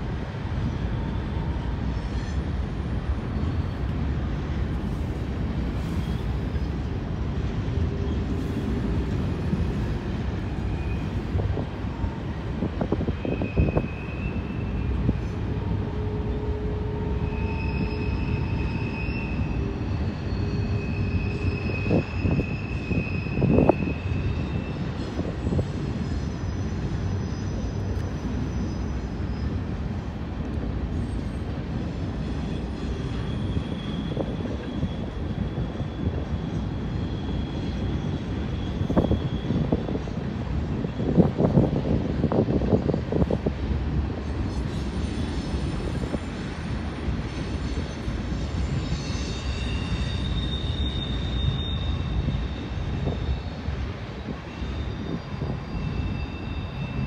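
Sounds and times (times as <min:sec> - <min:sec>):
freight train rumbling on rails: 0:00.0 - 0:57.0
sharp train clanks: 0:01.8 - 0:57.0
high-pitched wheel squeals: 0:13.0 - 0:15.4, 0:17.0 - 0:29.6, 0:32.2 - 0:40.1, 0:47.2 - 0:57.0.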